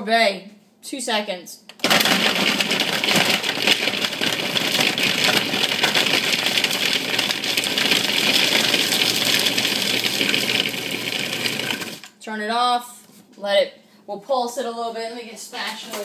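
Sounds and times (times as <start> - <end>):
food processor motor whirring: 1.8 - 12.1.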